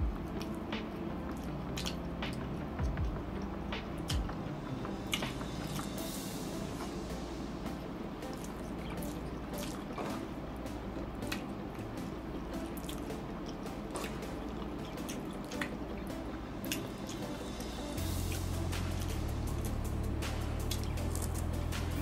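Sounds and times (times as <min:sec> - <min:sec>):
wet chewing: 0:00.2 - 0:04.4, 0:08.2 - 0:10.4, 0:12.5 - 0:19.6, 0:20.6 - 0:22.0.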